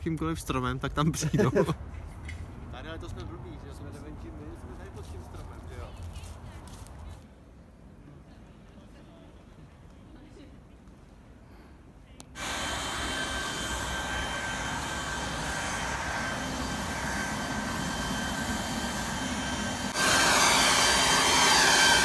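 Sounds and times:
leaf blower running: 12.4 - 22.0.

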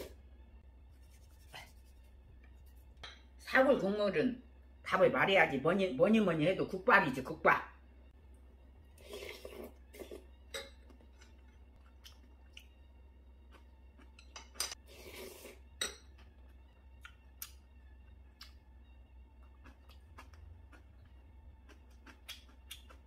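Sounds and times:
low hum: 0.0 - 23.0
slurping broth: 9.0 - 10.3, 14.8 - 15.7.

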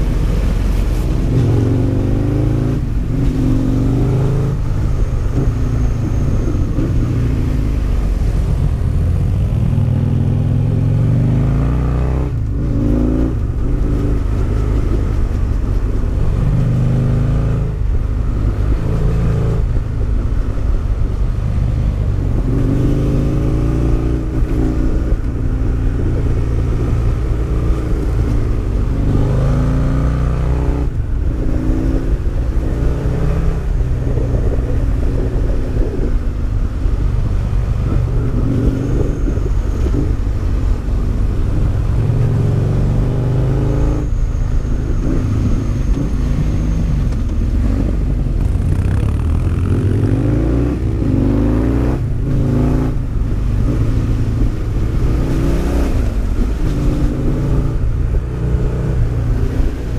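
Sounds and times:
motorcycle engine revving: 37.2 - 59.9.

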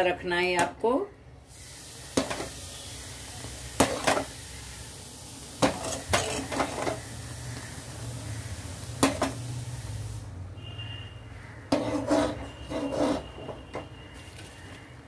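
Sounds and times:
metal ladle scraping a pot: 5.6 - 7.0, 11.7 - 13.9.

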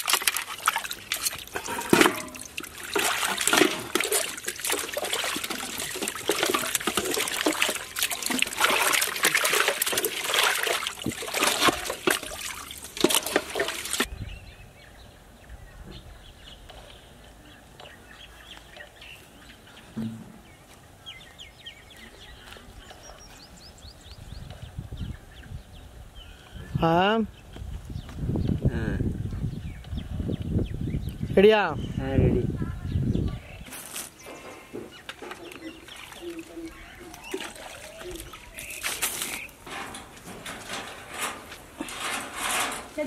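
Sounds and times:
hands splashing chicken in water: 0.0 - 14.1, 35.5 - 39.4.

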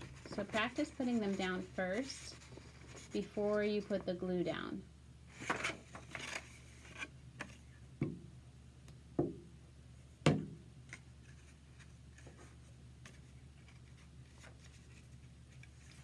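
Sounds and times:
paper rustling: 0.0 - 3.9, 5.3 - 7.6, 11.2 - 16.0.

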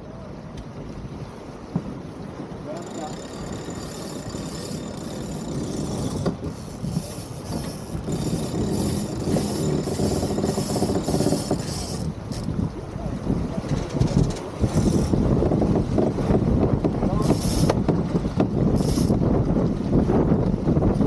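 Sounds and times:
wind and water rushing along hull: 0.0 - 21.0
rapid mechanical ratcheting: 2.8 - 12.5, 18.8 - 19.2.

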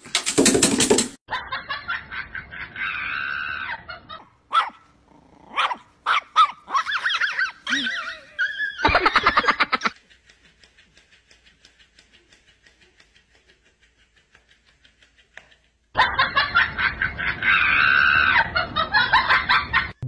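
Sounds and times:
dog barking and yipping: 4.5 - 4.9, 5.5 - 9.5.

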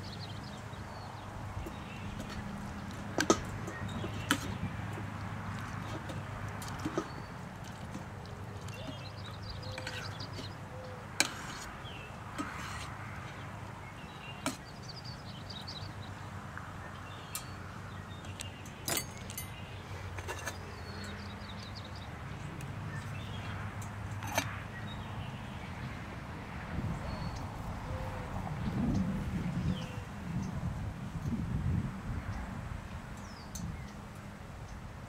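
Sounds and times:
wind rumble on microphone: 0.0 - 10.5, 19.2 - 35.0
fork scraping metal cup: 11.2 - 11.7, 12.4 - 13.0.

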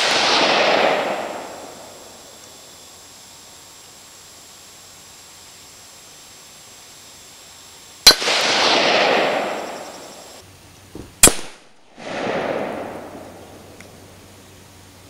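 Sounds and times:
rifle shots: 0.0 - 2.3, 8.1 - 10.3, 11.2 - 13.4.

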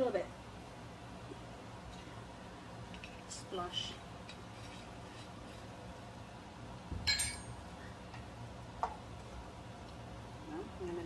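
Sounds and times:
glass clinking: 7.0 - 7.6.

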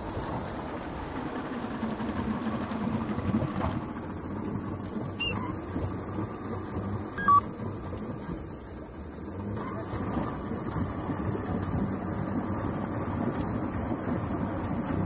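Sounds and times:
boat engine running: 0.0 - 15.0
two-note beep: 7.2 - 7.4.

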